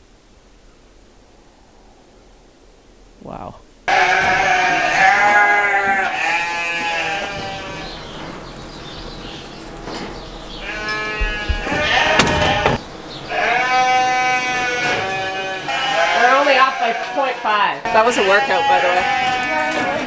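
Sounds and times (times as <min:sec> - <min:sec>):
sheep bleating: 0:03.9 - 0:08.1, 0:10.6 - 0:20.0
short rattle and knock: 0:09.8 - 0:12.9.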